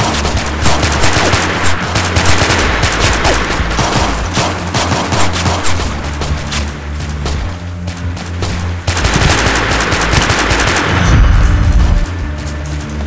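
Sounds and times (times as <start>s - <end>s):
rapid gunfire: 0.0s - 6.5s, 8.4s - 12.1s
low music bed: 0.0s - 13.0s.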